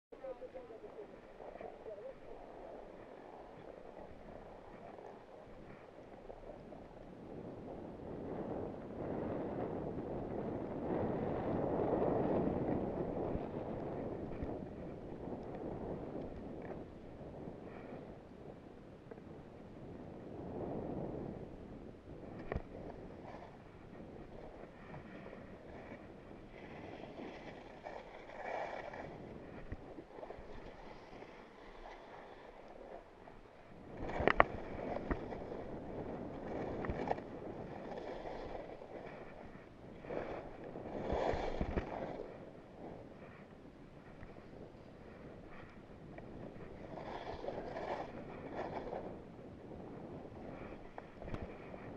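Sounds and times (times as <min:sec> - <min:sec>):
wind buffeting microphone: 0:00.1 - 0:51.9
skis sliding over snow: 0:00.3 - 0:06.8, 0:22.6 - 0:42.5, 0:46.5 - 0:49.2
skis scraping on snow: 0:24.4 - 0:32.6.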